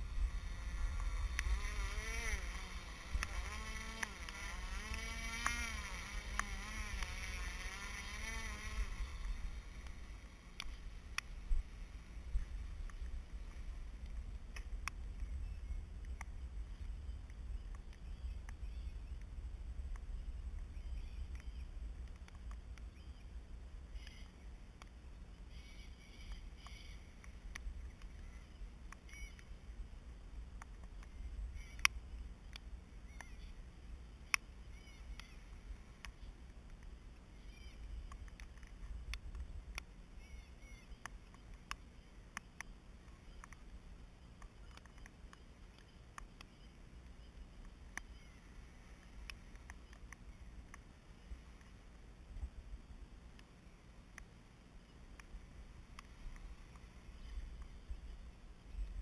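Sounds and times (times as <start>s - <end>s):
low rumble: 0.0s - 1.9s
faint low rumble: 0.0s - 59.0s
bird chirps: 15.2s - 19.4s, 20.1s - 21.8s, 22.8s - 24.6s, 25.4s - 29.6s, 31.1s - 36.3s, 37.3s - 38.7s, 40.1s - 49.0s.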